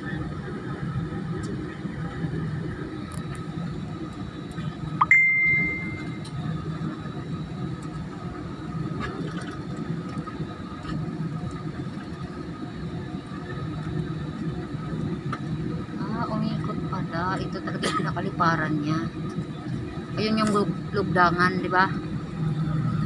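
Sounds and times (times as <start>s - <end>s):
airliner cabin rumble: 0.0s - 23.0s
loud ding: 5.0s - 6.1s.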